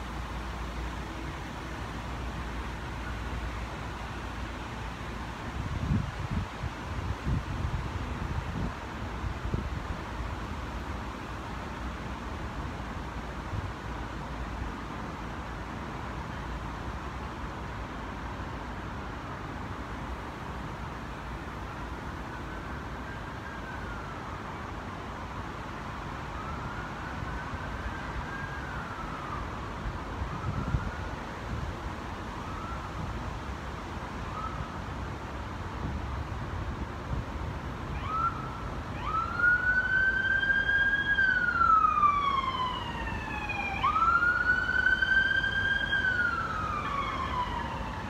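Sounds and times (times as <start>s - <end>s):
distant siren wailing: 21.8s - 24.7s, 25.9s - 33.3s, 34.1s - 35.0s, 37.8s - 48.0s.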